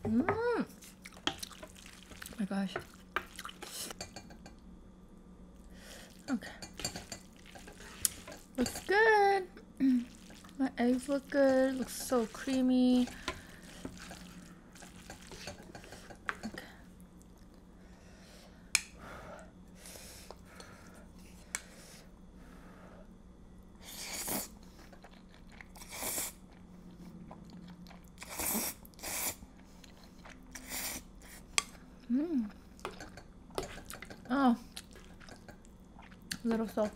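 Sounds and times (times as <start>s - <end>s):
wet chewing: 0.9s - 4.0s, 10.0s - 16.5s, 33.6s - 36.9s
utensils clicking on bowl: 6.3s - 9.0s, 10.2s - 16.6s, 32.8s - 35.7s.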